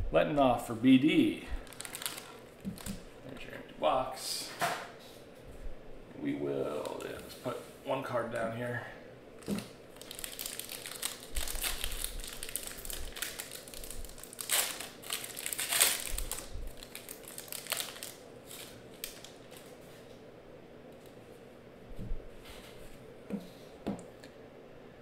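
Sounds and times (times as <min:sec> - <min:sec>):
foil wrapper tearing and crinkling: 0:01.6 - 0:03.0, 0:09.4 - 0:19.7.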